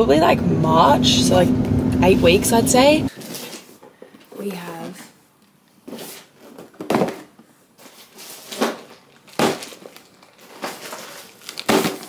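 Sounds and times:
packaging rustling: 0:05.9 - 0:12.0
boxes thumping: 0:06.5 - 0:07.4, 0:08.4 - 0:09.9, 0:10.5 - 0:12.0.

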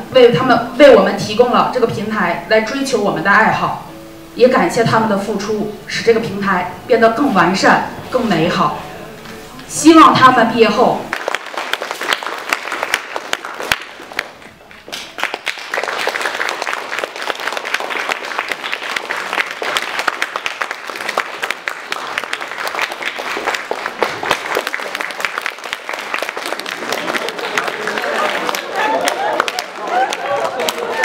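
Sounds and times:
audience applauding: 0:11.1 - 0:31.0.

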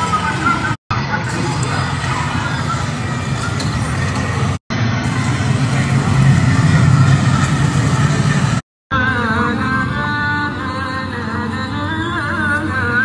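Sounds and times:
outdoor crowd: 0:00.0 - 0:13.0
steady low rumbling: 0:00.6 - 0:08.6.

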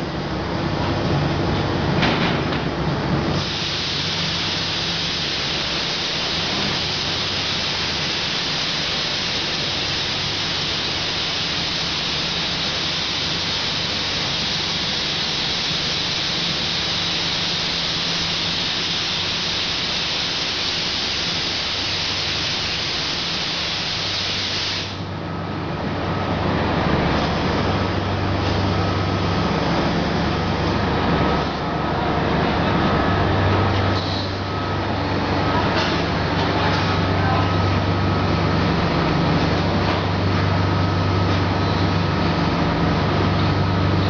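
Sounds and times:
steady hiss: 0:03.4 - 0:25.1.

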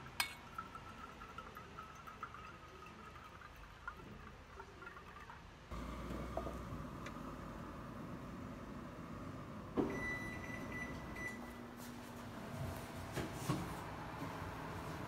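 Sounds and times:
indoor room hum: 0:05.6 - 0:15.0.

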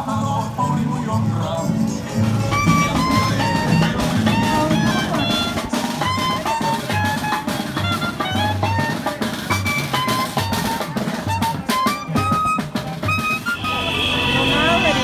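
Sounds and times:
steady bass line: 0:00.0 - 0:06.3
melody of quick stepping notes: 0:01.6 - 0:13.8
drum beat: 0:02.0 - 0:15.0.

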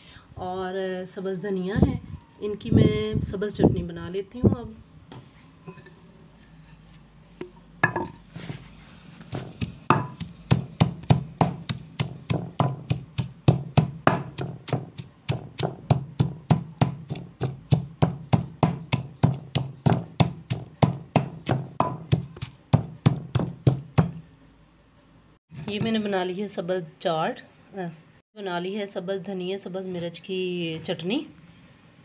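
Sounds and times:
pestle pounding in mortar: 0:09.3 - 0:24.2.

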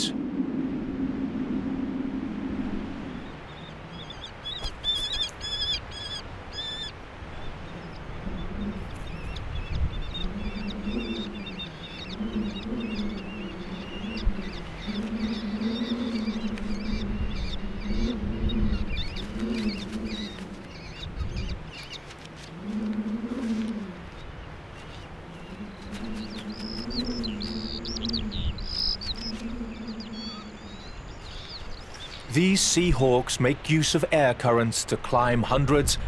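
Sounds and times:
low wavering bird call: 0:08.2 - 0:31.7.

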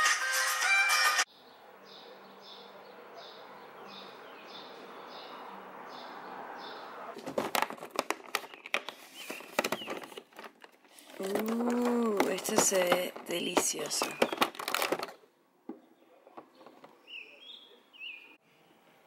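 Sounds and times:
cardboard clicking and crinkling: 0:07.2 - 0:17.0.

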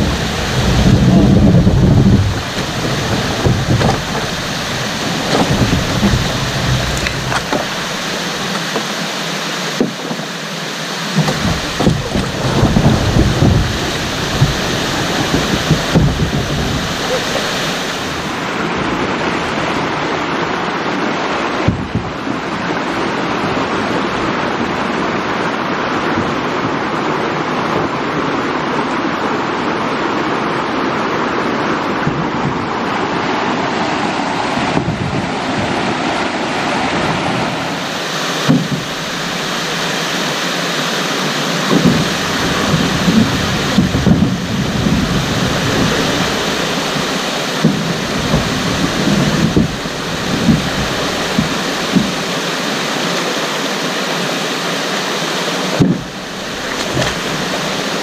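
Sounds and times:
low thumps: 0:00.0 - 0:09.2, 0:11.1 - 0:19.1, 0:41.7 - 0:52.2
waterfall rushing: 0:00.0 - 0:58.0.

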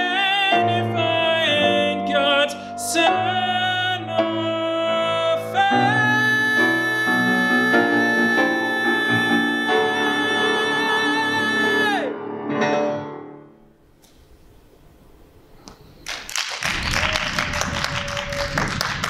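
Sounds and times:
tenor singing: 0:00.0 - 0:12.8
piano: 0:00.0 - 0:16.1
audience applause: 0:16.0 - 0:19.0.

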